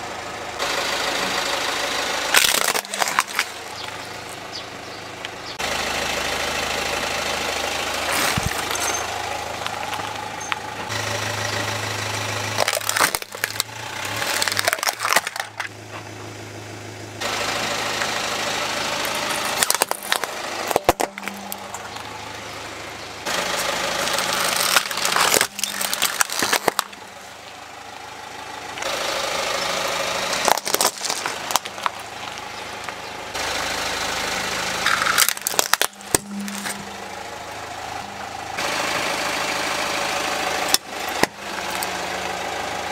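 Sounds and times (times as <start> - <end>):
car engine idling: 0.0 - 42.9
plastic toys cracking under tyre: 2.3 - 4.5, 8.0 - 10.2, 12.5 - 15.7, 19.1 - 22.1, 23.6 - 27.1, 30.3 - 33.0, 34.8 - 36.8.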